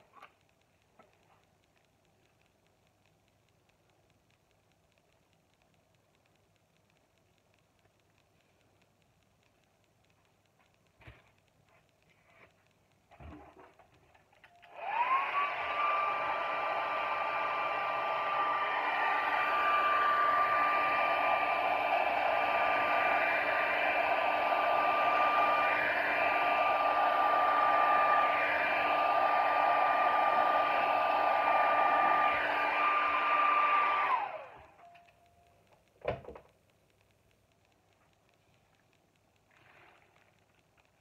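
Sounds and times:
hair dryer blowing: 0:14.7 - 0:34.8.

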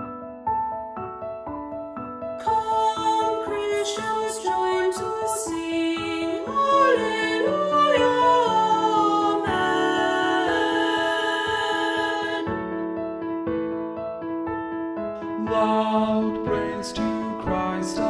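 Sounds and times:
mixed choir singing a hymn: 0:03.8 - 0:12.6.

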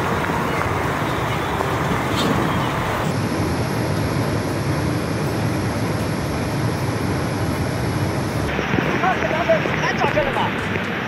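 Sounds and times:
floodwater rushing over edge: 0:00.0 - 0:03.1, 0:08.5 - 0:11.0.

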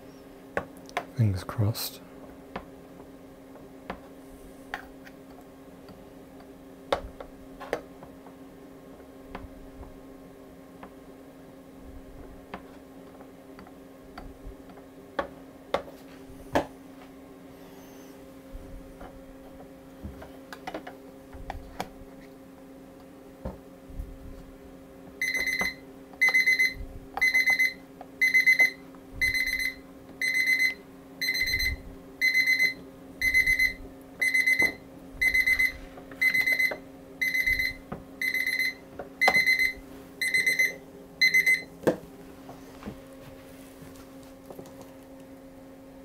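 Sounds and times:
stopwatch alarm beeping: 0:25.2 - 0:41.7.

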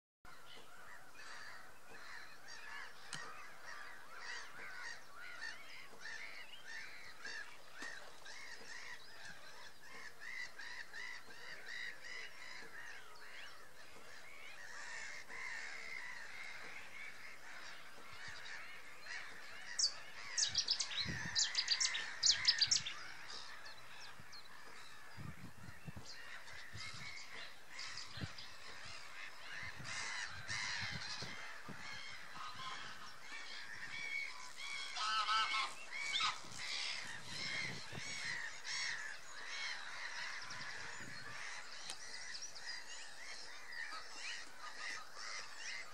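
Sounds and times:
gulls calling: 0:00.3 - 0:45.9.

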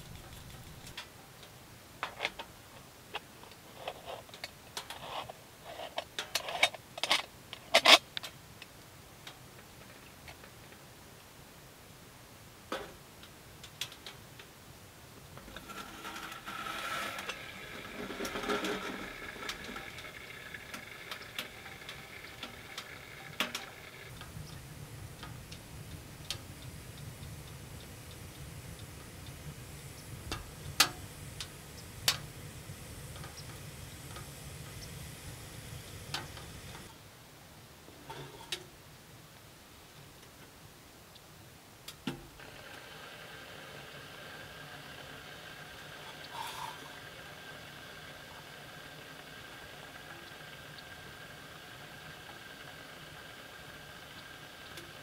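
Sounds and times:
wood fire crackling and popping: 0:00.0 - 0:01.1, 0:15.2 - 0:36.9
low hum: 0:15.4 - 0:36.9
steady ringing tones: 0:17.4 - 0:36.9.

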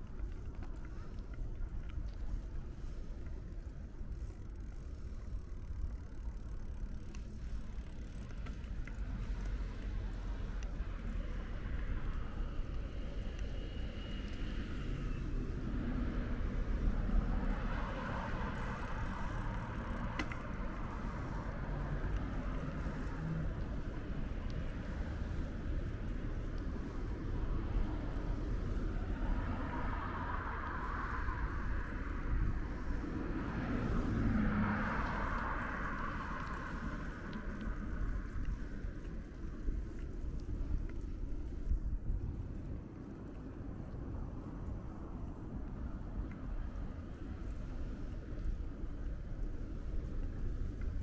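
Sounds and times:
street traffic noise: 0:00.0 - 0:51.0
vehicle passing: 0:27.3 - 0:39.6.

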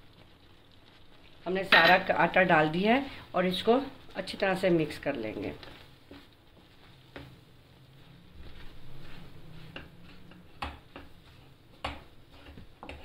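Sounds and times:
wooden spatula scraping metal pan: 0:05.3 - 0:13.0.

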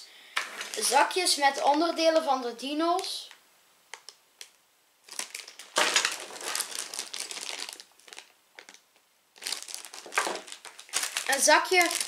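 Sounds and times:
plastic bags crinkling: 0:00.4 - 0:02.2, 0:05.0 - 0:12.0.

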